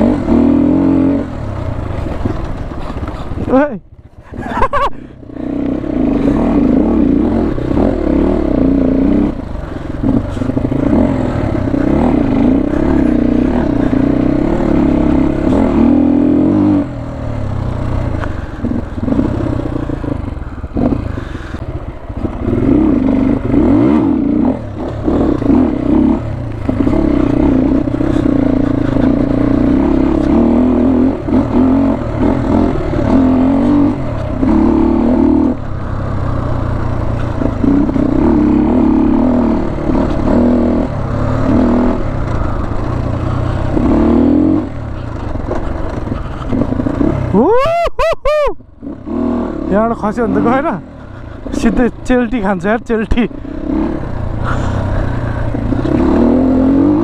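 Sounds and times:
motorcycle engine revving: 0:00.0 - 0:47.9, 0:48.6 - 0:57.0
clattering and scraping over ground: 0:01.9 - 0:04.4, 0:45.0 - 0:46.8.

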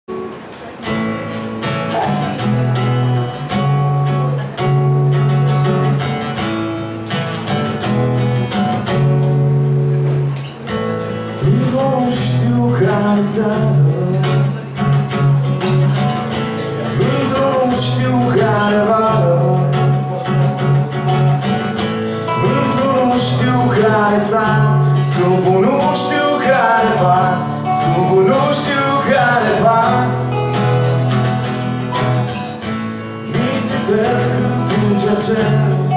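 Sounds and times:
guitars playing chords: 0:00.1 - 0:35.9
person singing: 0:22.3 - 0:35.9.

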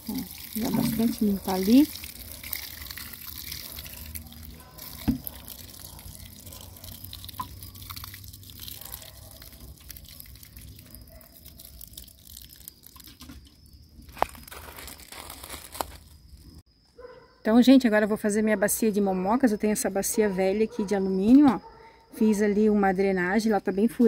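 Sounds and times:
water dripping and trickling: 0:00.0 - 0:14.9.

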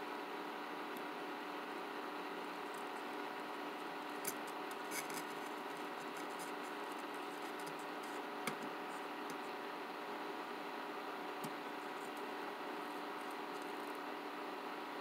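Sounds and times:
steady low hum: 0:00.0 - 0:15.0
soldering iron scratching and clicking: 0:04.1 - 0:09.5.

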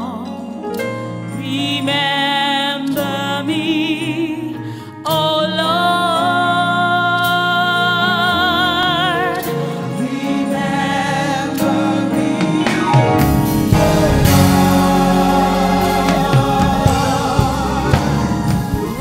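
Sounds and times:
instrumental backing: 0:00.0 - 0:19.0
woman singing gospel song: 0:01.4 - 0:09.7, 0:13.8 - 0:19.0.

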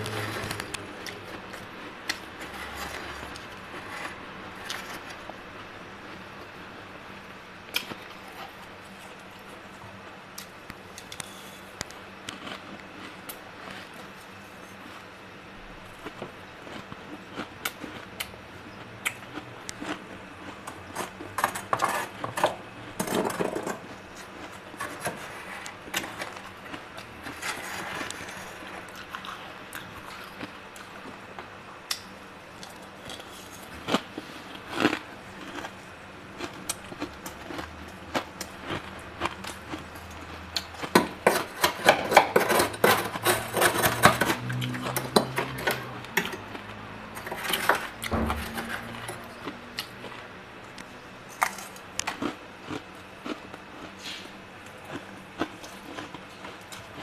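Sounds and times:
metal spoon scraping ice: 0:02.4 - 0:05.1, 0:21.0 - 0:23.8, 0:41.2 - 0:45.8.

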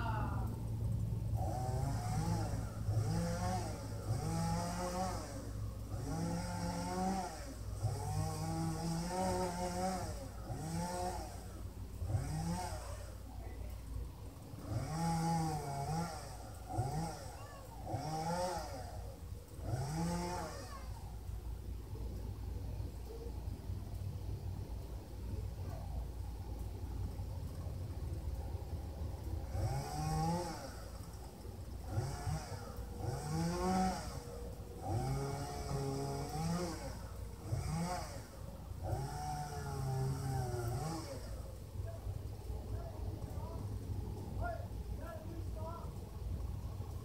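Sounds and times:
distant chainsaw revving: 0:00.0 - 0:47.0.

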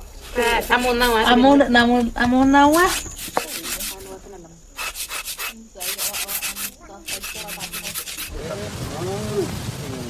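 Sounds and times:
craftwork rubbing strokes: 0:00.0 - 0:01.6, 0:02.6 - 0:08.4.

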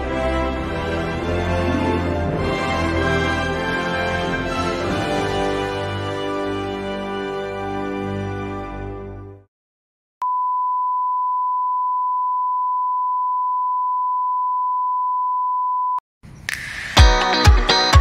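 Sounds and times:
music: 0:00.0 - 0:09.5, 0:16.5 - 0:18.0
steady test-tone beep: 0:10.2 - 0:16.0
music with a strong beat: 0:16.8 - 0:18.0.

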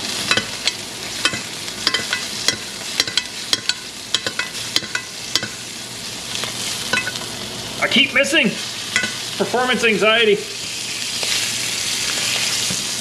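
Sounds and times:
meat sizzling in hot fat: 0:00.0 - 0:13.0
metal spoon clicking on pan: 0:00.3 - 0:05.6, 0:06.9 - 0:07.2.

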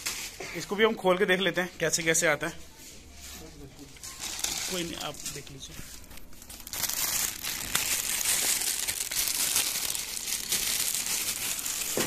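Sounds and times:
plastic bag crinkling: 0:03.4 - 0:12.0.

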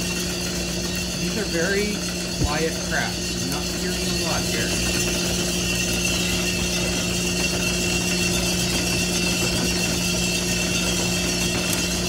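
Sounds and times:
roaster machine hum and fan: 0:00.0 - 0:12.0.

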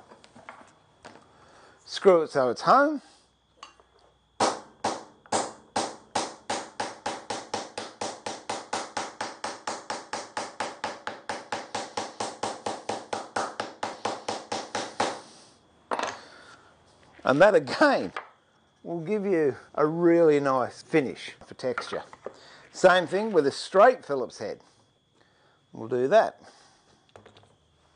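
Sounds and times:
punch tapping on wood: 0:04.4 - 0:15.2.

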